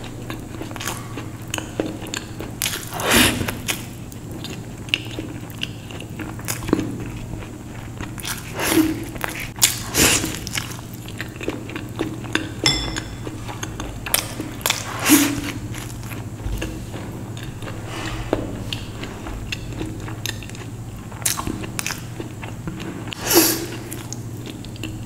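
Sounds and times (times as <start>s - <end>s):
person biting and chewing food: 0.0s - 12.5s, 13.2s - 25.0s.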